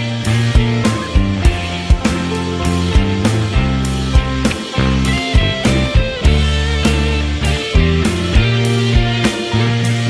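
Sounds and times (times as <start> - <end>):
guitar: 0.0 - 10.0
low bass notes: 0.0 - 10.0
drum hits: 0.6 - 9.6.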